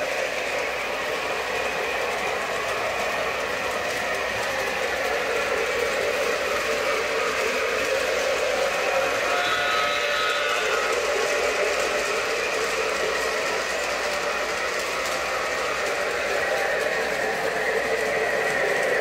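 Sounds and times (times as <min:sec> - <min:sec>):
model train motor hum: 0:00.0 - 0:19.0.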